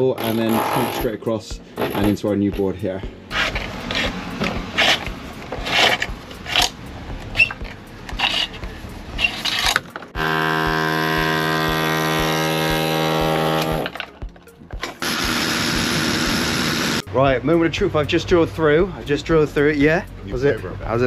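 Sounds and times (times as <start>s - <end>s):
cables scraping through conduit: 3.3s - 6.8s, 7.4s - 9.8s
electric drill drilling into wall: 10.2s - 14.0s, 15.0s - 17.0s.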